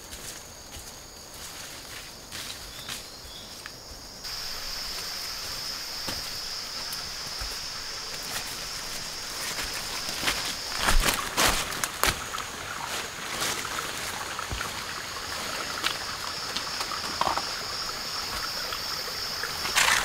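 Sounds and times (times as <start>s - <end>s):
insects droning: 0.0s - 20.0s
footsteps on leaf litter: 4.2s - 14.7s.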